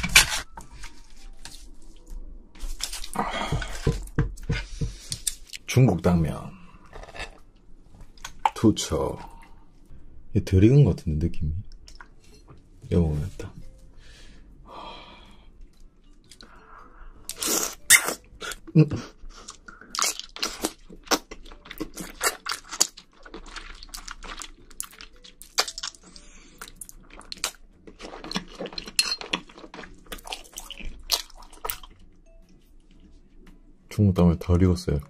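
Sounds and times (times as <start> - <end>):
chewing noodles: 19.3 - 33.1.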